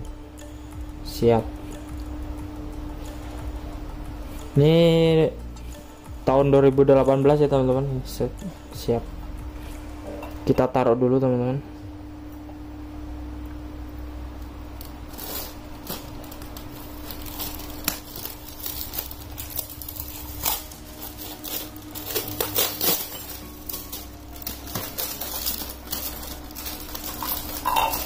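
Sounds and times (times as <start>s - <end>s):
low hum: 0.0s - 28.0s
plastic rustling: 15.1s - 28.0s.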